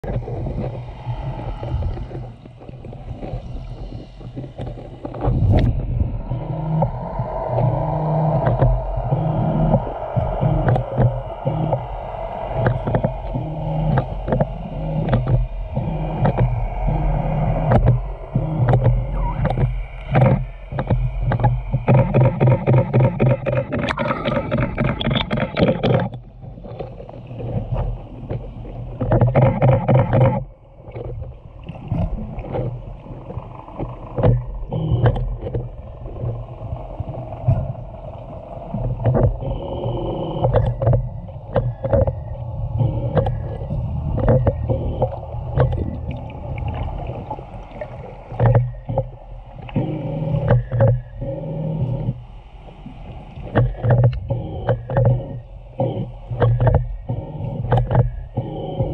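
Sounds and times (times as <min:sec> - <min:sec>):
buzzing whale calls: 0:00.0 - 0:58.9
low underwater rumble: 0:00.0 - 0:58.9
whale clicks: 0:00.0 - 0:58.9.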